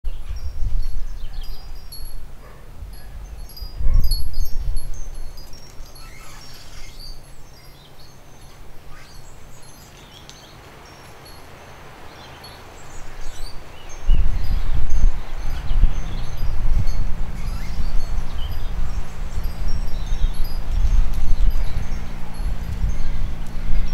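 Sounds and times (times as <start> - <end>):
wind buffeting microphone: 0.1 - 7.5, 12.7 - 23.9
wind chimes tinkling: 0.2 - 23.9.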